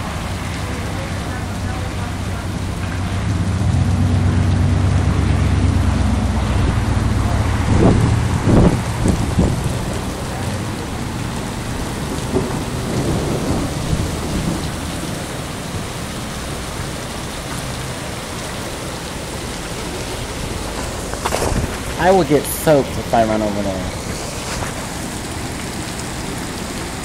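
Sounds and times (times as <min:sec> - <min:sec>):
low rumble: 0:00.0 - 0:22.1
heavy rain on asphalt: 0:00.0 - 0:27.0.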